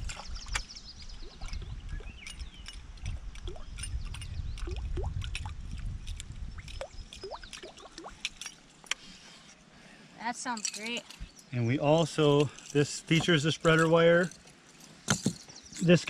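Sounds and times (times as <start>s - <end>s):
lure tail blade clicking on water: 1.4s - 9.0s
water gurgling: 2.9s - 8.6s.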